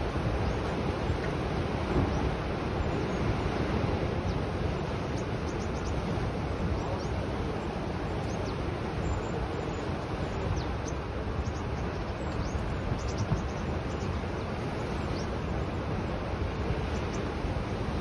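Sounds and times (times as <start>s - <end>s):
sea surf breaking: 0.0s - 10.3s
wind: 0.0s - 18.0s.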